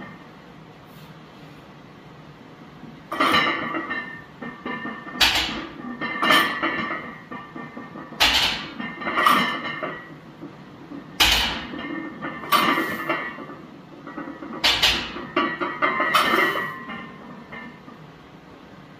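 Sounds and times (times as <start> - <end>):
barbell clanking onto steel pins: 3.1 - 17.9.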